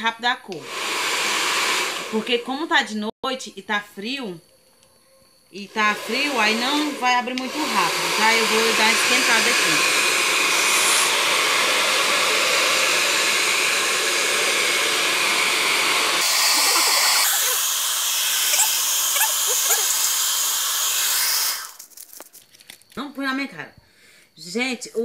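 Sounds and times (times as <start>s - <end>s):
hair dryer blowing: 0.5s - 2.7s, 5.6s - 21.8s.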